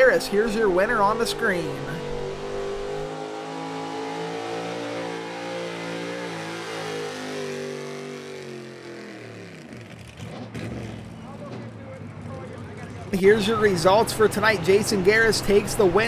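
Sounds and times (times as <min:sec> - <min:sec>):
truck engine at high revs: 0:00.0 - 0:11.6.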